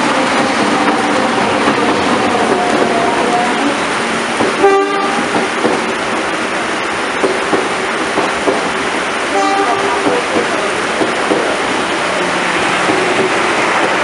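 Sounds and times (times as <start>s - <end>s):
heavy rain: 0.0s - 14.0s
train wheels rushing past: 0.0s - 14.0s
train horn toot: 4.6s - 5.3s, 9.3s - 10.0s.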